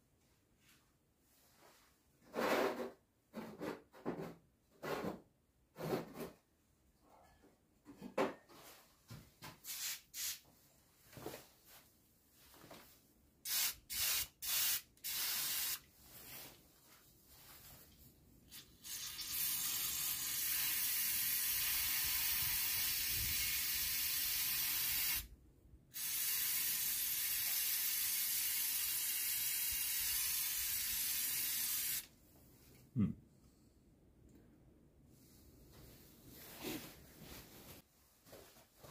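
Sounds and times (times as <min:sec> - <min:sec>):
aerosol can spraying: 0:09.6 - 0:10.4, 0:13.5 - 0:15.9, 0:18.5 - 0:25.3, 0:26.0 - 0:32.1.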